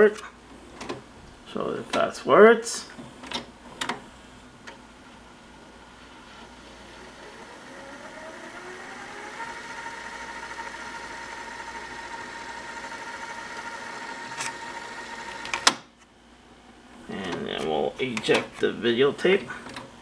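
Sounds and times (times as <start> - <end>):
tape machine motor whine: 6.8 - 15.8
tape transport clunk: 14.2 - 15.9.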